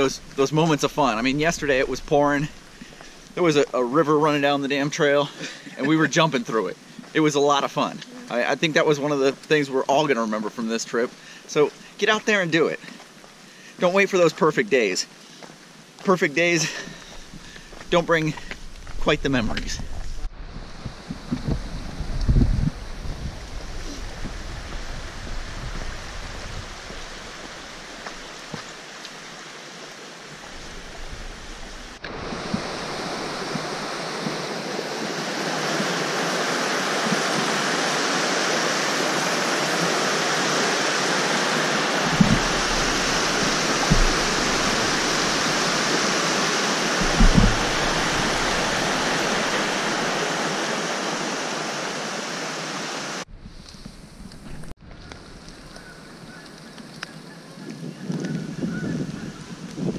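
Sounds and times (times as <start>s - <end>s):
rushing stream white water: 0.0s - 13.0s, 20.4s - 53.3s
dull bumps: 42.0s - 46.1s, 46.9s - 50.2s.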